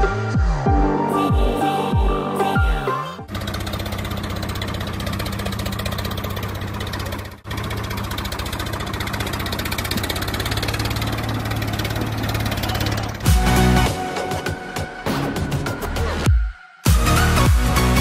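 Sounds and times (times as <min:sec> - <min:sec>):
tractor engine running: 0:03.0 - 0:15.2.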